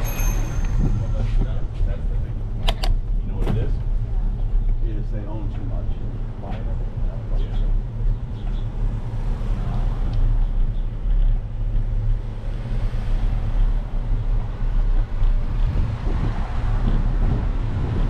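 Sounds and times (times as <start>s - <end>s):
wind rushing over microphone: 0.0s - 4.7s, 11.9s - 18.0s
tyre road noise: 0.0s - 18.0s.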